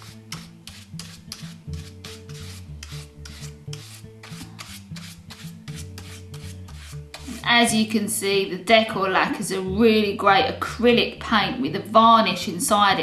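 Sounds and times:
paintbrush scrubbing cardboard: 0.0 - 7.6
soft background music: 0.0 - 13.0.

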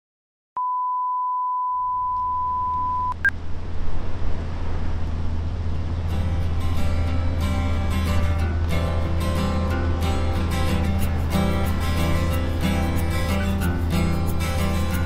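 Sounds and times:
short high beep: 0.6 - 3.3
low hum with rough noise: 2.2 - 15.0
plucked guitar music: 6.0 - 15.0.

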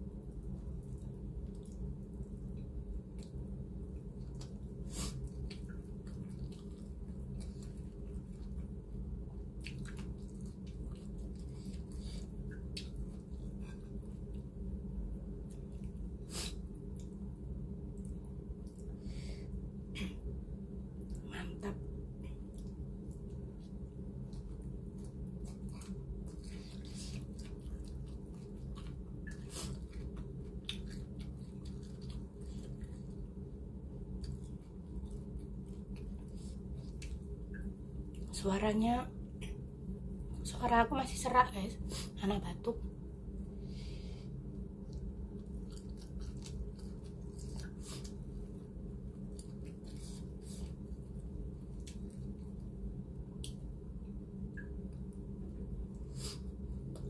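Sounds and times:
low hum: 0.0 - 57.0
wet chewing clicks: 0.7 - 14.5, 22.2 - 38.3, 44.8 - 53.7.

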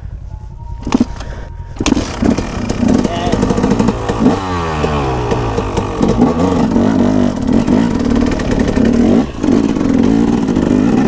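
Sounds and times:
dirt bike engine revving: 1.8 - 11.0.

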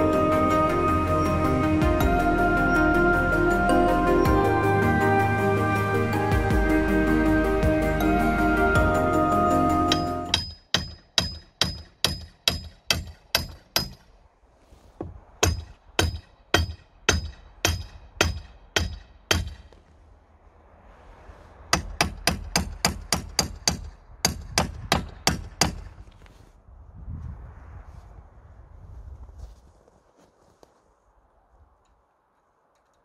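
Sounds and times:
hammer striking wood: 9.9 - 14.0, 15.0 - 19.7, 21.8 - 25.9.

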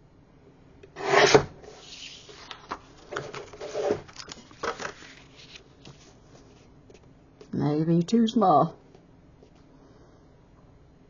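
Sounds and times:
paper rustling and sliding: 1.0 - 6.7.

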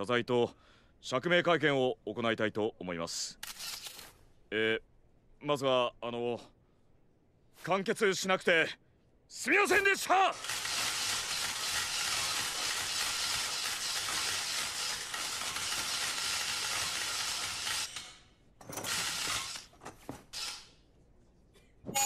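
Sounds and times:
camera shutters clicking: 3.4 - 4.1, 10.4 - 18.1.

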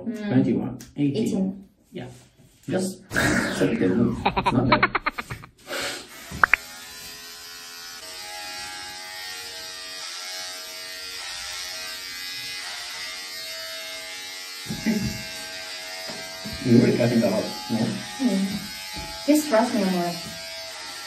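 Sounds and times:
electric hair clipper buzzing: 6.1 - 21.0.

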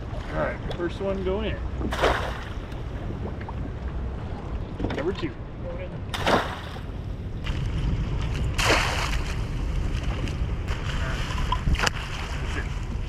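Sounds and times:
wind rumble on microphone: 0.0 - 13.0
water splashes: 1.6 - 4.4, 6.1 - 12.8.

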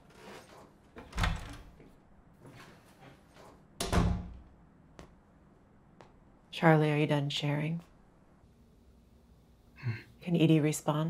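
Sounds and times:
door banging shut: 3.8 - 4.4.

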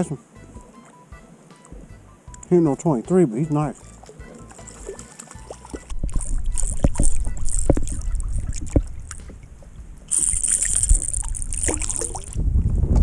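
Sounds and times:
water slapping against hull: 4.0 - 12.4
fish splashing at surface: 4.2 - 9.3, 10.1 - 12.4.

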